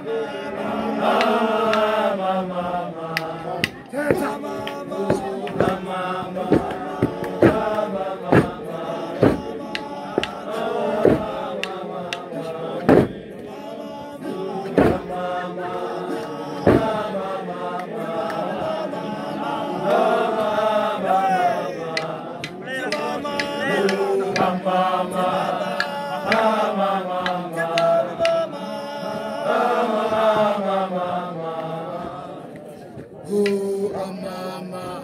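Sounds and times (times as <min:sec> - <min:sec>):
group of voices chanting: 0:00.0 - 0:35.0
loud sharp percussive strikes: 0:09.2 - 0:10.4.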